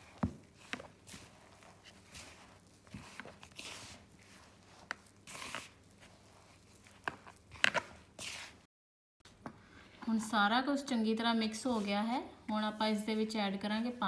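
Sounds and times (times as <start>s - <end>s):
hand rubbing dry mix in bowl: 0.0s - 8.7s.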